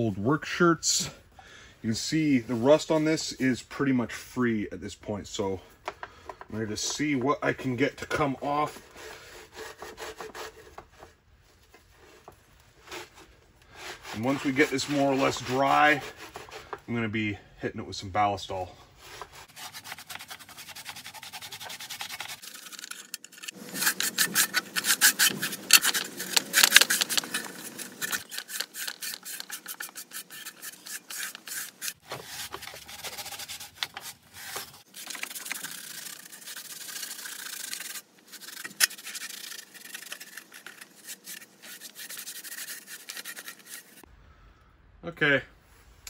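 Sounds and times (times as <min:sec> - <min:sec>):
rag scrubbing metal: 0:12.8 - 0:16.8, 0:19.0 - 0:44.1.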